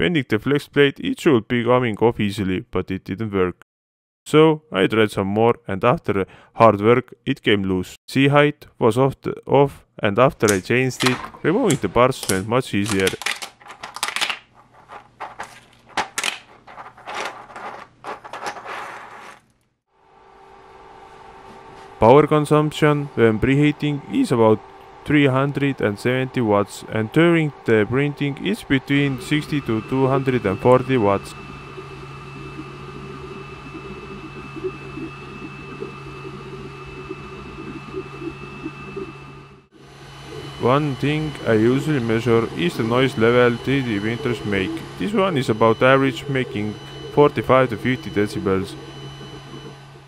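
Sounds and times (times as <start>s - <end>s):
printer fan hum with high whine: 10.2s - 14.3s, 20.0s - 50.0s
plastic print clicking and rattling: 10.4s - 14.4s
scraping rustles: 14.5s - 19.5s
stepper motors chirping: 22.0s - 50.0s.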